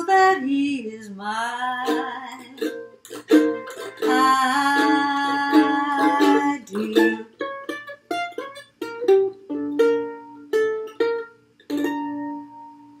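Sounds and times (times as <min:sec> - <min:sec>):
mandolin picked notes and chords: 0:01.8 - 0:13.0.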